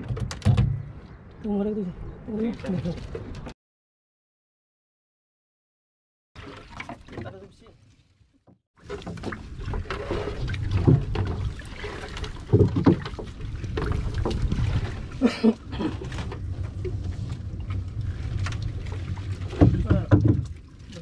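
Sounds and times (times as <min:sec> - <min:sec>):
knocks and thumps in boat: 0:00.0 - 0:01.0, 0:06.4 - 0:07.7, 0:08.5 - 0:21.0.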